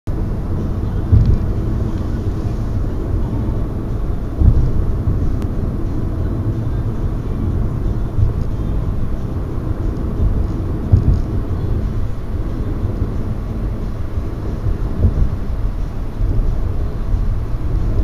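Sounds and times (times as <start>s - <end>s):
car cabin road rumble: 0.1s - 18.0s
thumps: 1.0s - 1.6s, 4.3s - 5.6s, 10.2s - 11.4s.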